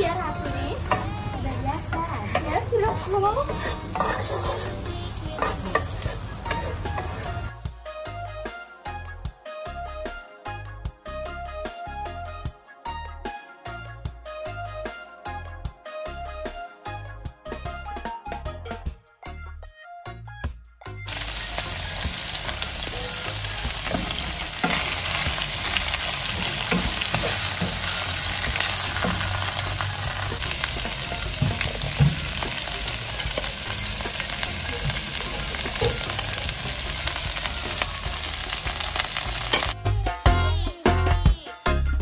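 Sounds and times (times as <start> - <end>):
vegetables sizzling in hot oil: 0.8 - 7.5, 21.1 - 39.8
spatula scraping pan: 0.9 - 7.5, 21.1 - 37.6.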